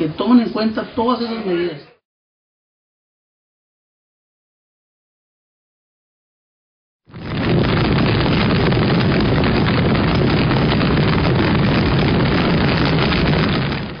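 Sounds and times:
deep rumble: 7.1 - 14.0.

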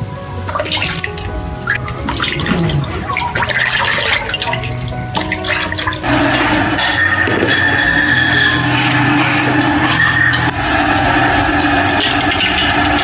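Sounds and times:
water sloshing in a metal pot: 0.4 - 10.6, 11.4 - 13.0
steady rushing noise: 5.9 - 13.0.

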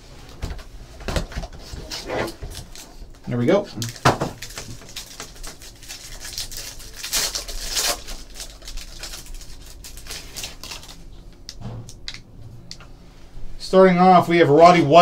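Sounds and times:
foil wrapper crinkling and tearing: 2.5 - 11.1
cards sliding out of foil: 3.9 - 11.0.

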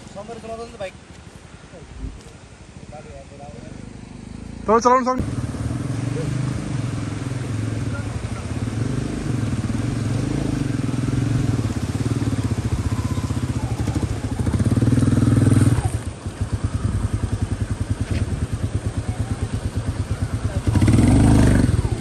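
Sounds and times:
motorcycle engine thumping: 13.8 - 22.0.

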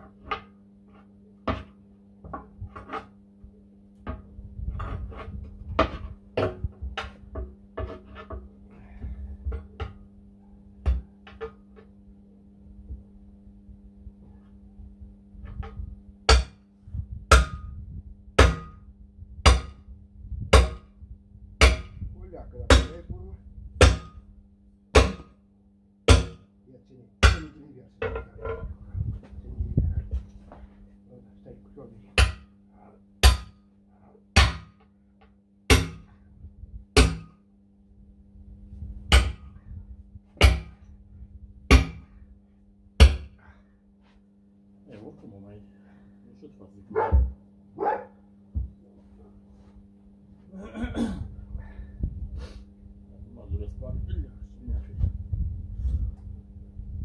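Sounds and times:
sledgehammer blows on metal wheel: 17.2 - 17.8, 18.4 - 19.9, 20.5 - 21.0, 21.6 - 23.2, 23.8 - 24.3, 24.9 - 25.4, 26.1 - 26.5, 35.7 - 36.2, 37.0 - 37.4, 40.4 - 40.8
hammer striking metal wheel: 18.4 - 18.8, 20.6 - 20.9, 21.6 - 22.0, 23.8 - 24.2, 26.1 - 26.4, 33.2 - 33.6, 35.7 - 36.1, 37.0 - 37.4.

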